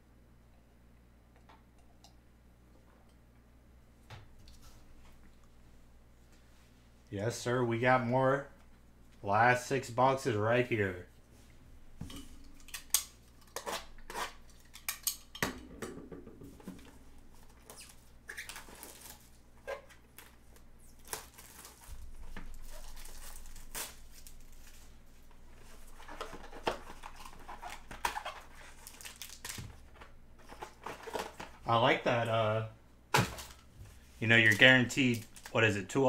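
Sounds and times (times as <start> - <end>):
plastic wrap crinkling: 17.3 - 31.7, 33.2 - 35.7.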